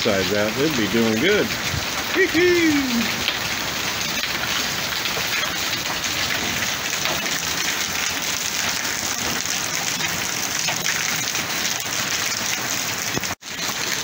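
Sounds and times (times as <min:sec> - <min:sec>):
heavy rain hissing: 0:00.0 - 0:10.8.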